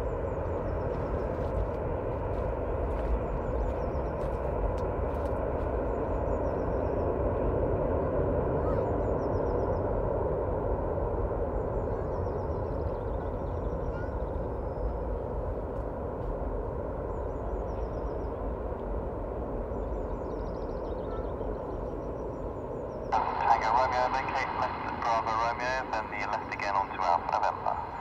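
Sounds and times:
distant jet engine rumble: 0.0s - 28.0s
small birds chirping: 19.7s - 24.7s.

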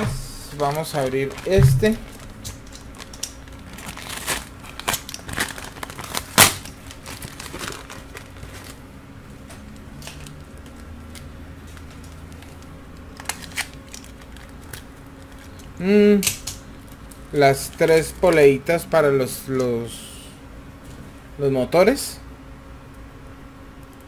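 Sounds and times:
plastic packaging crinkling: 0.5s - 8.9s, 10.0s - 15.8s.

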